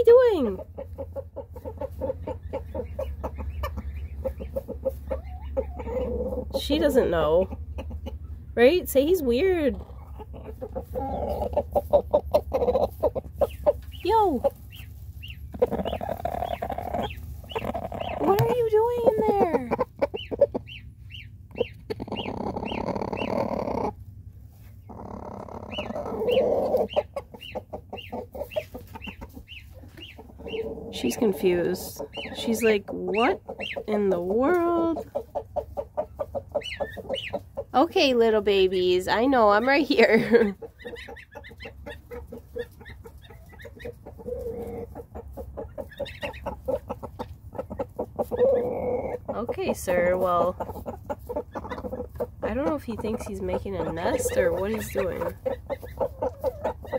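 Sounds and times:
chickens clucking: 0:00.0 - 0:56.9
goslings peeping: 0:00.0 - 0:56.9
rooster low rough grumbling: 0:21.9 - 0:24.0, 0:24.8 - 0:26.7.

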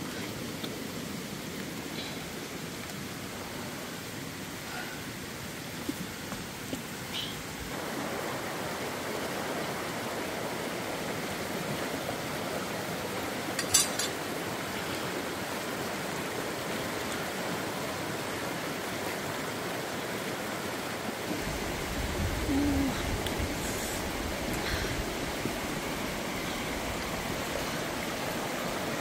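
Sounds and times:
running water rushing: 0:00.0 - 0:29.0.

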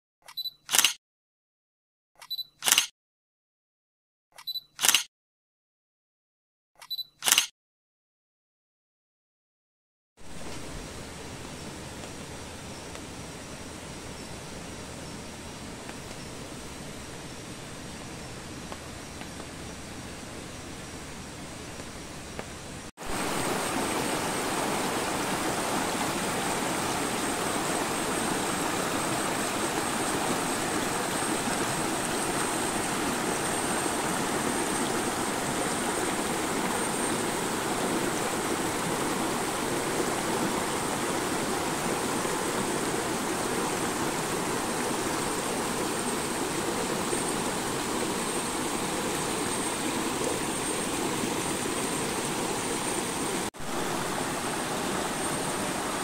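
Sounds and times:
stream rushing over rocks: 0:10.2 - 0:12.3, 0:23.0 - 0:56.0.

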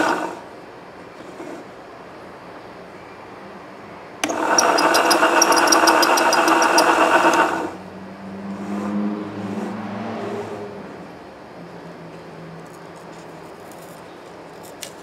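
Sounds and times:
winding motor whine: 0:00.0 - 0:00.4, 0:04.2 - 0:07.8
fast light ticking: 0:04.2 - 0:07.5.

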